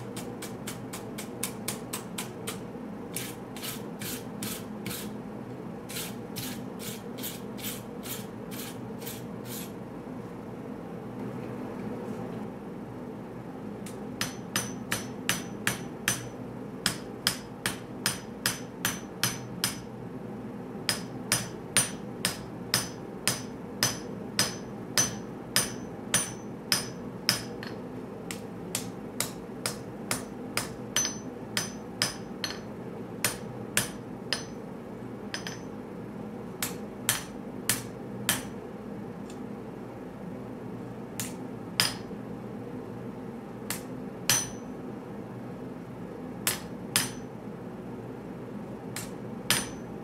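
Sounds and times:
steady low hum: 0.0 - 50.0
hammer striking steel on anvil: 13.9 - 19.9, 20.9 - 34.6, 35.3 - 35.8, 36.6 - 38.6, 41.2 - 42.1, 43.7 - 44.7, 46.4 - 47.3, 49.0 - 49.9.

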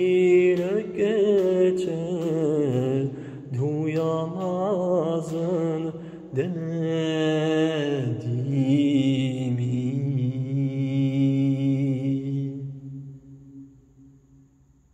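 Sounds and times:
person singing wordless melody: 0.0 - 13.5.

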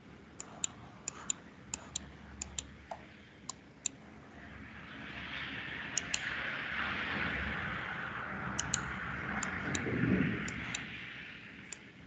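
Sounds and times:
computer mouse clicking: 0.4 - 4.0, 5.9 - 6.4, 8.5 - 9.9, 10.5 - 10.9.

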